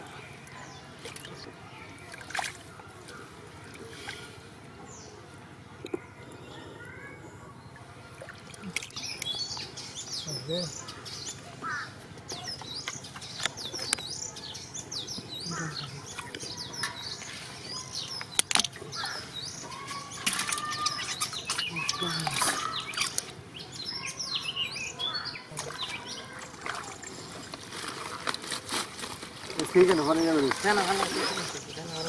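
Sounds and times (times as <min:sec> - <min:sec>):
small birds chirping: 0:00.0 - 0:32.0
splashing in muddy water: 0:02.1 - 0:02.7, 0:08.1 - 0:09.4, 0:18.3 - 0:23.4, 0:25.5 - 0:28.4, 0:29.5 - 0:31.8.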